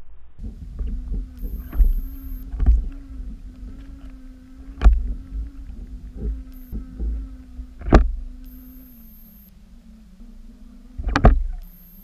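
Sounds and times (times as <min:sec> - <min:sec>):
steady low hum: 0:00.0 - 0:12.0
underwater water rumble: 0:00.0 - 0:12.0
dull underwater knocks: 0:00.4 - 0:08.7, 0:11.0 - 0:11.7.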